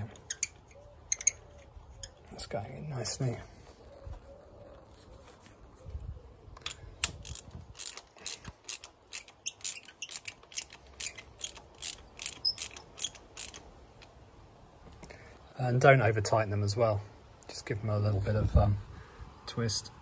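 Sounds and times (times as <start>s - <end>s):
ratchet wrench clicking: 0.0s - 1.4s, 6.6s - 13.7s.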